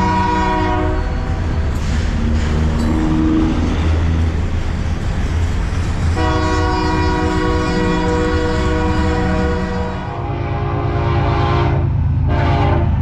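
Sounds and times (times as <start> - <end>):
locomotive horn chord: 0.0 - 1.2, 6.2 - 13.0
passing train rumble: 0.0 - 13.0.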